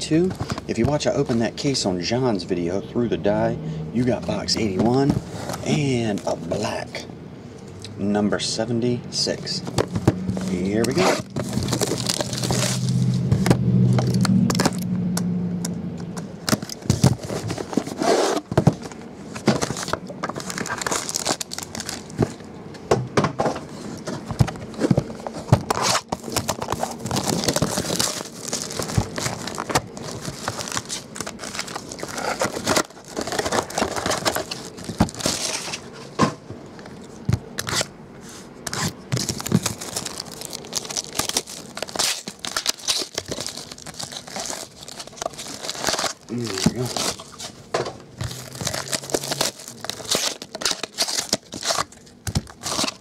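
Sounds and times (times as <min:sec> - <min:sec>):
cardboard boxes handled: 0:04.3 - 0:06.5, 0:09.6 - 0:13.5, 0:16.3 - 0:22.4, 0:23.3 - 0:53.0
plastic shrink wrap tearing: 0:10.3 - 0:14.8, 0:19.6 - 0:22.4, 0:25.6 - 0:35.8, 0:38.7 - 0:47.6, 0:48.2 - 0:53.0.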